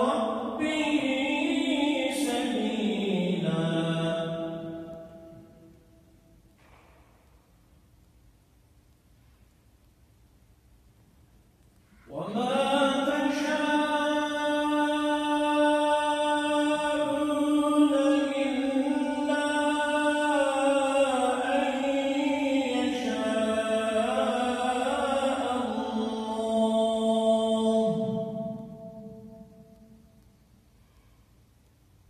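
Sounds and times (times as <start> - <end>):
man chanting melodically with echo: 0.0 - 5.9, 11.9 - 30.2.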